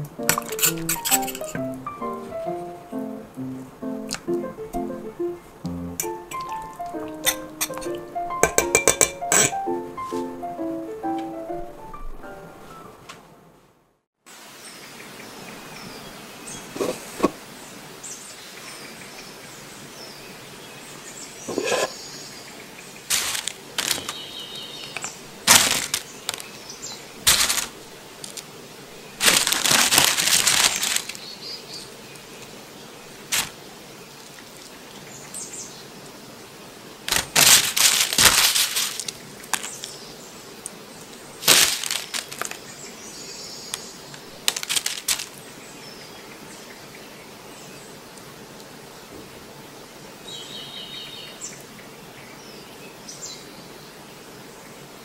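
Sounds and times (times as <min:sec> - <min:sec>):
birds chirping faintly: 0:00.0 - 0:13.4, 0:14.6 - 0:37.2, 0:38.9 - 0:55.0
tempura crackling and rustling: 0:23.1 - 0:31.3, 0:33.2 - 0:33.6, 0:37.1 - 0:40.0, 0:41.4 - 0:42.7, 0:43.7 - 0:45.4.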